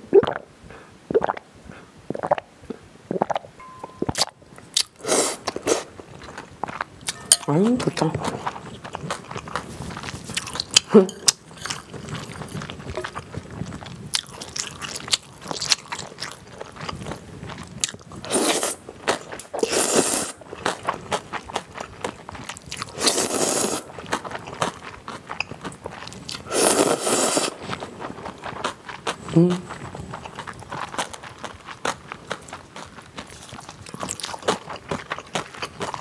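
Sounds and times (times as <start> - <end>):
close chewing with mouth clicks: 7.8 - 36.0
loud noodle slurps: 18.2 - 18.8, 19.6 - 20.4, 22.9 - 23.9, 26.5 - 27.8.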